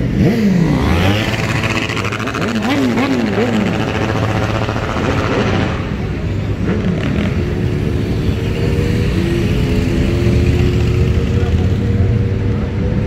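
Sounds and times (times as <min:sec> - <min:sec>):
motorcycle engines at low revs: 0:00.0 - 0:13.0.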